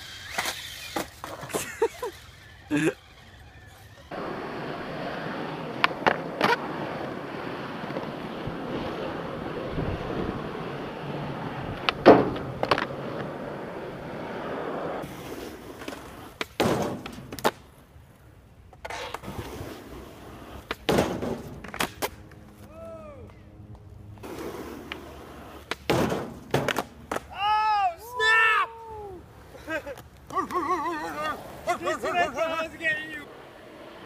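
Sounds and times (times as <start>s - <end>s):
skateboard clacks: 0.0s - 17.8s, 18.7s - 22.8s, 24.2s - 27.5s
skateboard wheels rolling on asphalt: 0.0s - 34.0s
skateboard knocks: 11.7s - 13.3s, 25.7s - 27.3s.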